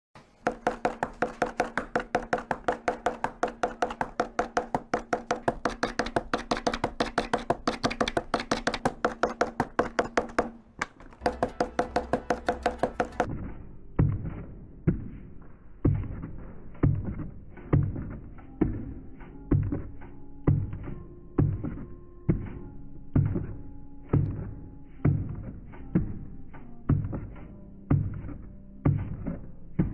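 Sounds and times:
seal stamping onto paper: 0.5 - 10.6.

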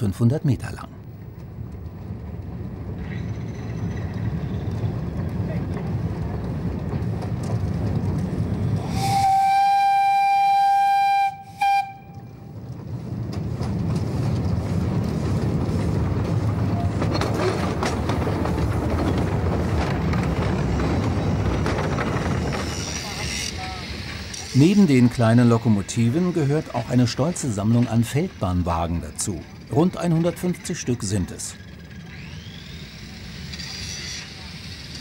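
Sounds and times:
train wheels clattering on track: 1.2 - 11.0, 12.0 - 35.0
steam whistle blowing: 8.8 - 12.3.

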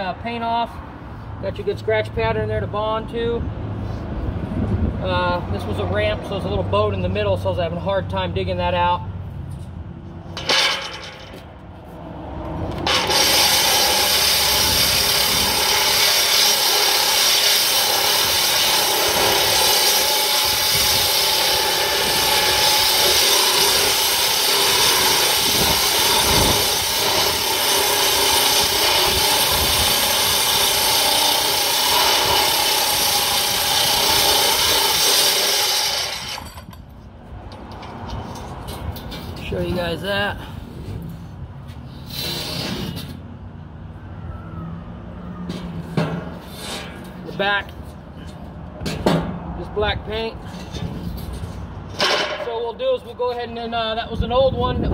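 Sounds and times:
angle grinder grinding steel: 12.8 - 36.7.

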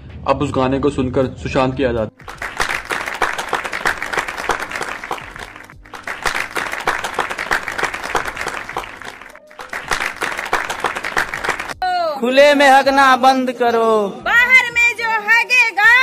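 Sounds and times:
crowd applause: 2.2 - 11.8.

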